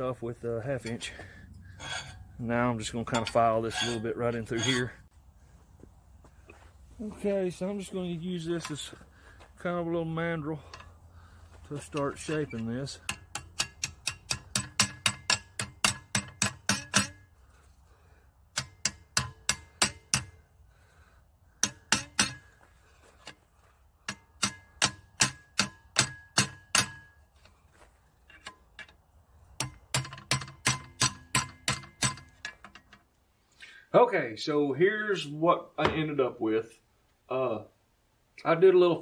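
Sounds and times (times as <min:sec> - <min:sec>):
hammer striking steel: 0:13.0 - 0:17.2, 0:18.6 - 0:20.4, 0:21.6 - 0:22.4, 0:24.1 - 0:27.2.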